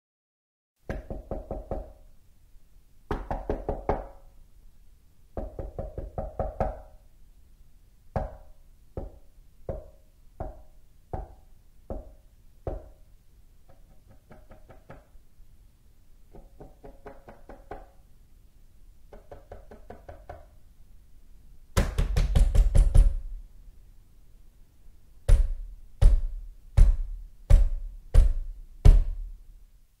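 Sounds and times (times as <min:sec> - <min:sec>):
knocking on a door: 0:00.9 - 0:02.0, 0:03.1 - 0:04.2, 0:05.4 - 0:06.9, 0:09.0 - 0:13.0, 0:16.3 - 0:18.0, 0:19.1 - 0:20.5, 0:21.8 - 0:23.3, 0:25.3 - 0:29.3
heavy blows on a door: 0:21.8 - 0:23.4, 0:25.3 - 0:29.4.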